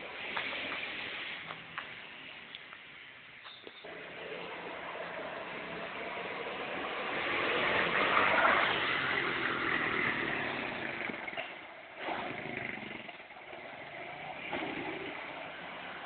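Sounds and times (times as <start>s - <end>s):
small motor vehicle driving off: 3.8s - 16.0s.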